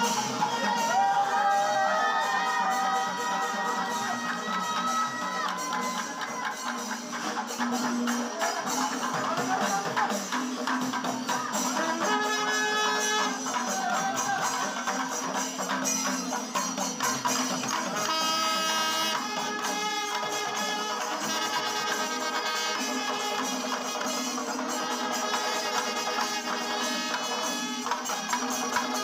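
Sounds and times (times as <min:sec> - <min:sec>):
drums and cymbals clattering: 0:00.0 - 0:29.0
brass horns long notes: 0:11.8 - 0:13.8, 0:17.9 - 0:29.0.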